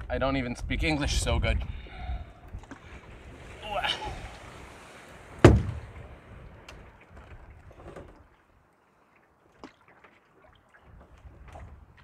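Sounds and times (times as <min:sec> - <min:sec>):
water noise: 0:00.0 - 0:12.0
paddle knocking on canoe: 0:05.4 - 0:06.2.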